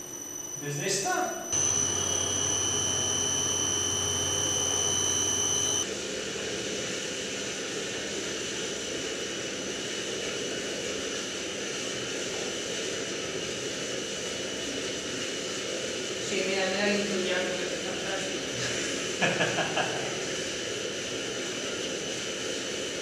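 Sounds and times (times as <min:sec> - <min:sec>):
machine whirring with high whine: 0:00.0 - 0:05.9.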